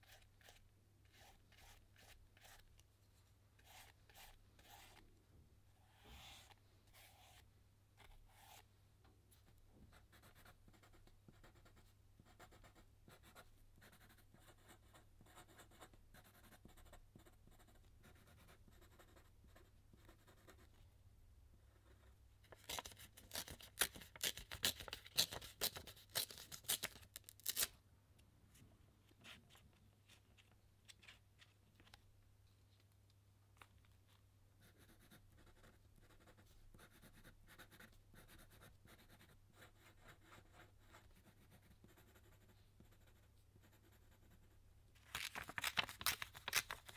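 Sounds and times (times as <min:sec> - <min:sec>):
marker scratching on paper: 0:00.0 - 0:02.7, 0:03.6 - 0:05.0, 0:05.9 - 0:07.4
pen scratching on paper: 0:00.0 - 0:02.7, 0:03.6 - 0:05.0, 0:05.8 - 0:07.4, 0:09.9 - 0:20.7, 0:34.6 - 0:43.2.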